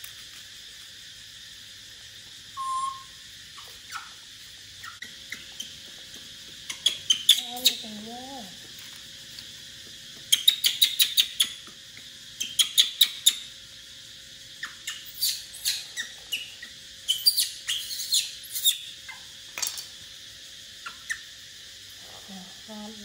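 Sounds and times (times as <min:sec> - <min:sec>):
baby monkey squeaking: 0:02.6 - 0:04.2, 0:04.8 - 0:06.0, 0:06.6 - 0:08.0, 0:10.3 - 0:11.6, 0:12.4 - 0:13.5, 0:14.6 - 0:19.3.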